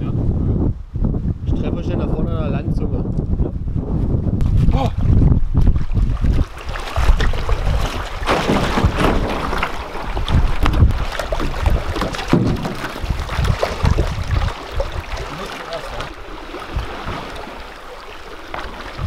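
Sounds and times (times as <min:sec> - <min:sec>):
wind buffeting microphone: 0:00.0 - 0:19.0
water splashing: 0:04.8 - 0:19.0
canoe knocking on stones: 0:07.1 - 0:14.0.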